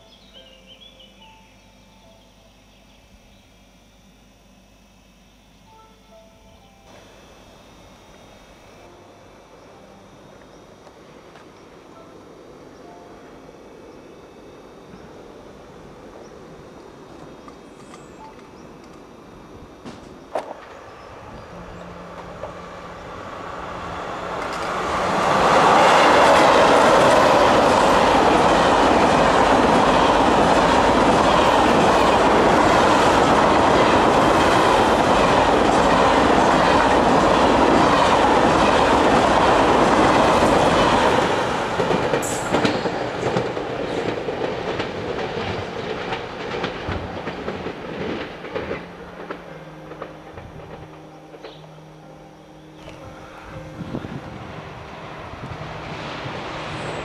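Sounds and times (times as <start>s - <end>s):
high-speed train passing: 6.9s - 57.0s
train wheel clicks: 24.3s - 51.6s.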